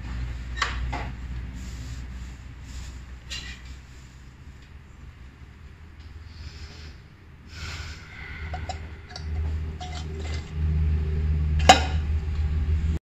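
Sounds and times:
low handling rumble: 7.1s - 13.0s.

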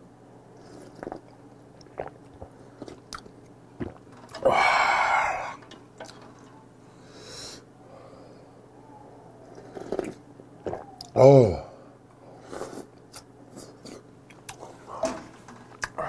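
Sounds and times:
breathy ahh of satisfaction: 4.4s - 5.6s.

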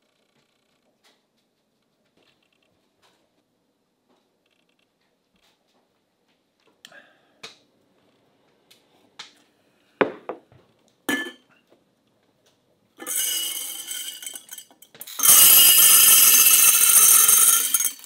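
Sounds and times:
glass jars clinking: 11.1s - 11.5s, 13.0s - 18.0s
dried goods pouring through funnel: 13.1s - 18.0s.

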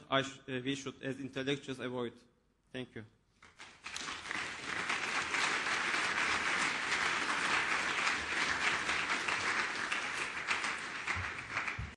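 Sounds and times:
audience applauding: 3.5s - 11.9s.

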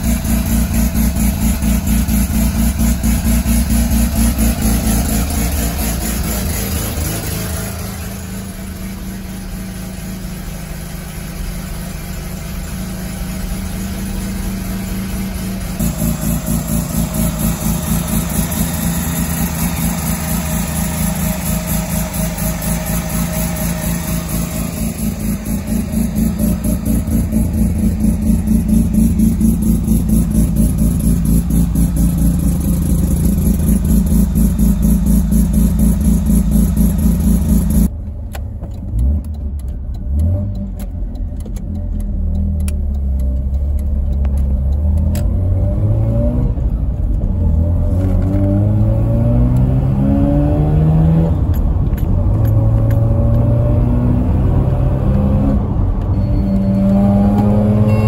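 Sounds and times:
engine accelerating through gears: 0.0s - 37.9s, 38.7s - 58.0s.

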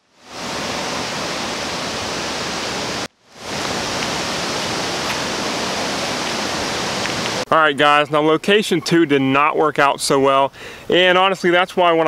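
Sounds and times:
running water rushing: 0.0s - 7.5s.

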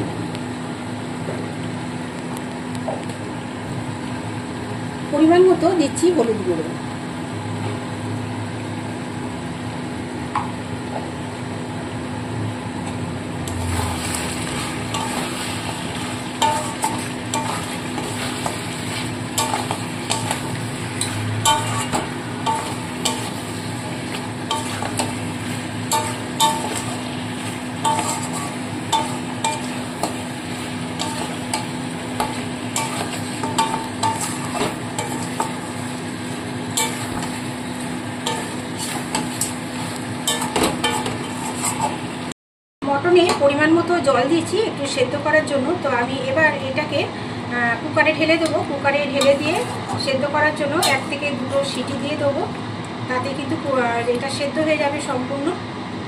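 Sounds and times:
meat sizzling: 13.4s - 42.3s
metal spatula scraping a pan: 13.5s - 30.2s, 31.0s - 35.6s, 36.8s - 37.5s, 38.2s - 42.0s, 49.2s - 50.1s.

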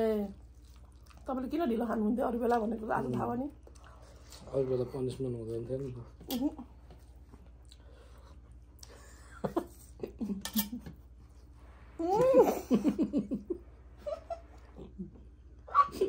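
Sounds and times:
person laughing: 12.0s - 16.0s.

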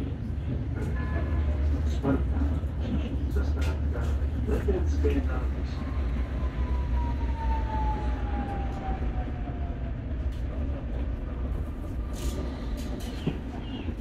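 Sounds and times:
electric tram rumbling: 0.0s - 14.0s
tram motor whine: 3.7s - 14.0s.

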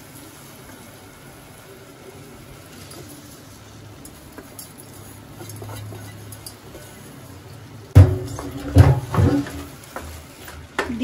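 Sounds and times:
spoon knocking and scraping pot: 8.0s - 10.2s.

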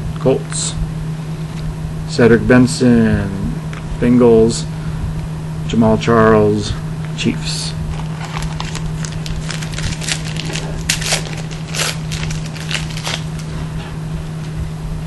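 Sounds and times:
foil pack crinkling: 7.9s - 13.7s.

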